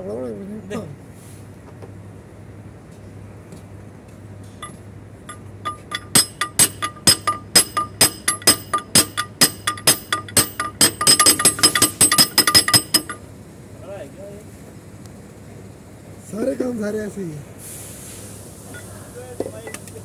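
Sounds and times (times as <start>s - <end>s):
hammer blows on metal: 4.6s - 13.2s.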